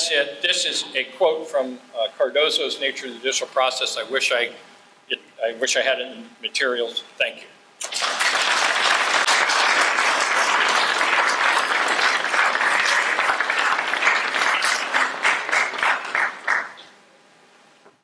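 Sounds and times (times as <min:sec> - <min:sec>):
audience applauding: 0:07.8 - 0:16.9.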